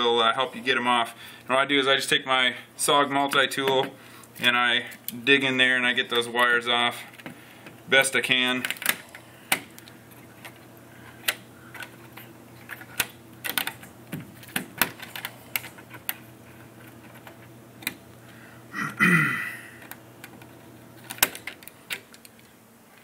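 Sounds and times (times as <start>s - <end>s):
pliers clicking on wires: 6.1s - 18.1s, 19.8s - 22.5s.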